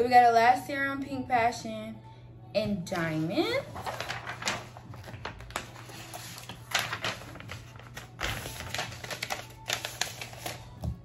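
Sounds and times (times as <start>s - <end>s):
paper rustling and crinkling: 3.6s - 11.0s.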